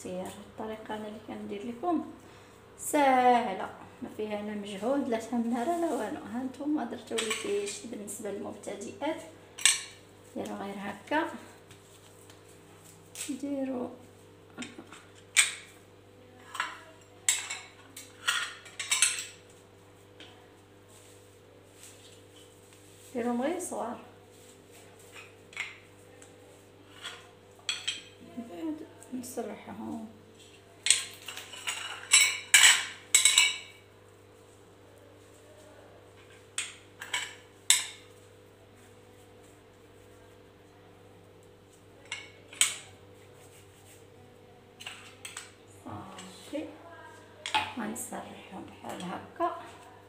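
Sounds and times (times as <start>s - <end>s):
dishware clinking and knocking: 26.9s - 28.2s, 30.8s - 33.8s.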